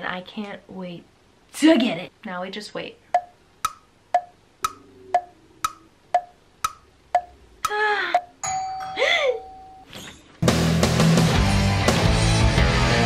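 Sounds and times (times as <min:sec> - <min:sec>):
wood-block clock ticks: 0:03.1 - 0:08.4.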